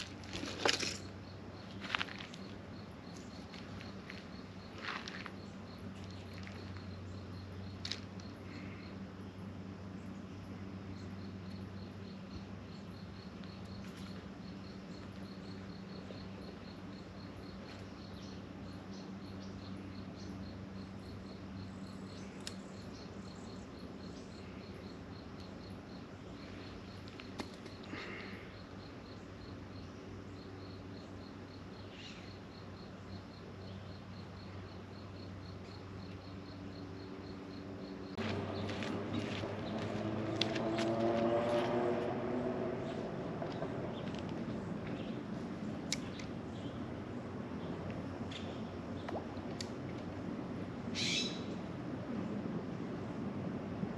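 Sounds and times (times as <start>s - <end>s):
insect chirping: 0.0s - 53.3s
low steady hum: 0.0s - 53.9s.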